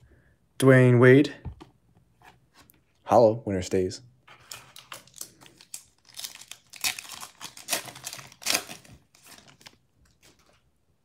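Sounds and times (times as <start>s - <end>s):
foil wrapper tearing and crinkling: 4.8s - 10.6s.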